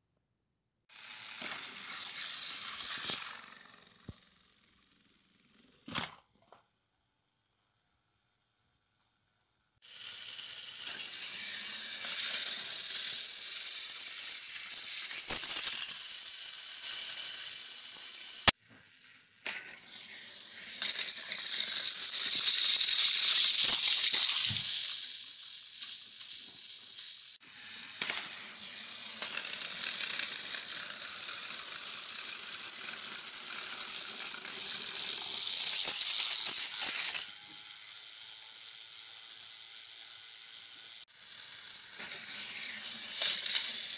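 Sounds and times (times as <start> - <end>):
toy train motor whirring: 0.9 - 5.6, 9.8 - 43.9
plastic toys tipping over: 22.0 - 25.2.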